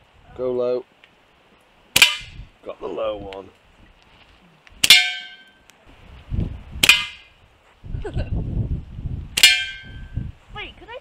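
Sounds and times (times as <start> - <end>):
metallic clangs on metal target: 4.8 - 5.6, 9.4 - 10.0.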